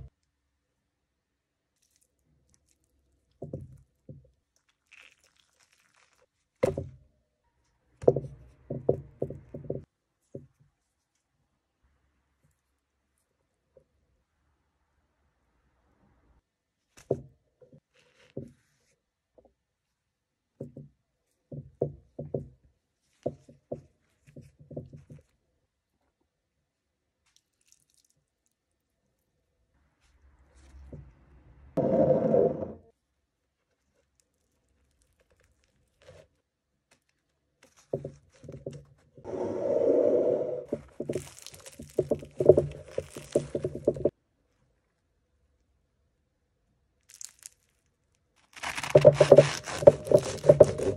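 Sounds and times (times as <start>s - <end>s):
bread crust crackling as torn: 4.5s - 6.6s, 27.2s - 28.6s, 33.8s - 37.8s, 41.1s - 42.0s, 47.0s - 50.8s.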